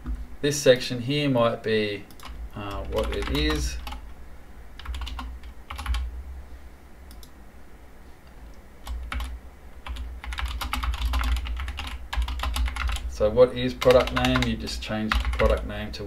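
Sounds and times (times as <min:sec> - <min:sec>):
computer keyboard typing: 0:02.1 - 0:04.1, 0:04.8 - 0:06.1, 0:08.8 - 0:13.1, 0:13.7 - 0:15.7.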